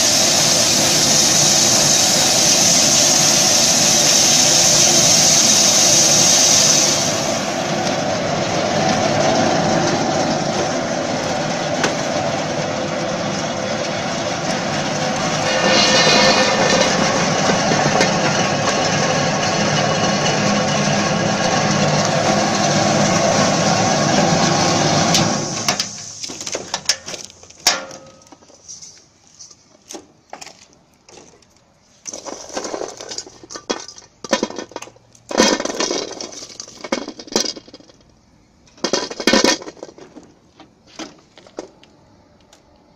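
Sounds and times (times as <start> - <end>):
machine whirring: 13.4 - 25.7.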